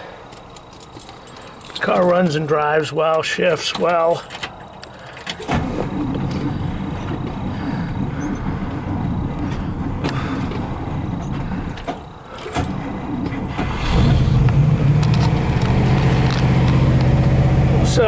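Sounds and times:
car engine running: 5.4s - 18.0s.

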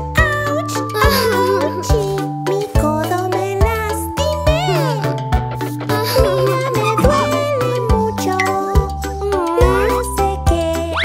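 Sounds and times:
bouncy backing track: 1.9s - 10.9s
person singing: 5.8s - 11.0s.

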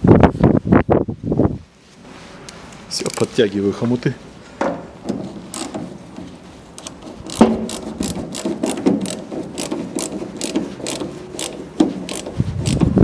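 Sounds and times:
socket ratchet clicking: 5.5s - 5.8s, 6.8s - 13.0s.

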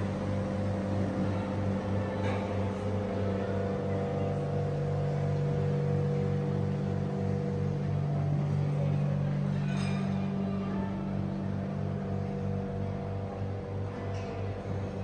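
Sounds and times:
machinery humming with low pulse: 0.0s - 15.0s.

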